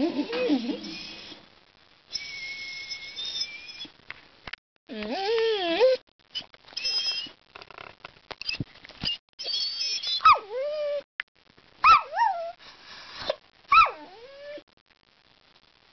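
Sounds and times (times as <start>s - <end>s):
dog whining: 0.0s - 1.4s, 2.1s - 3.9s, 4.9s - 7.4s, 8.4s - 11.1s, 11.8s - 12.6s, 13.2s - 14.6s
dog yowling: 4.9s - 6.0s, 9.0s - 11.0s, 11.8s - 12.6s, 13.2s - 14.6s.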